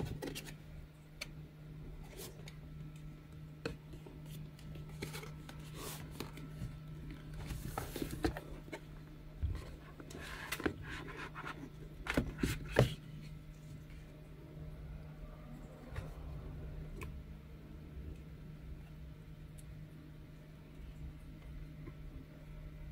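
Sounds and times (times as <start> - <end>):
steady low hum: 0.0 - 22.9
cardboard box sliding and rubbing: 5.0 - 6.7, 7.3 - 8.5.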